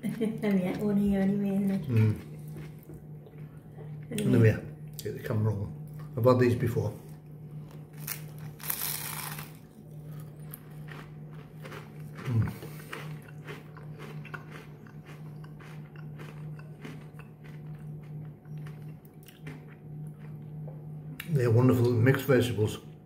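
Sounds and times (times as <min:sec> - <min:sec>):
person humming: 0:01.8 - 0:02.2, 0:12.2 - 0:12.8
crunchy biting and chewing: 0:07.2 - 0:20.6.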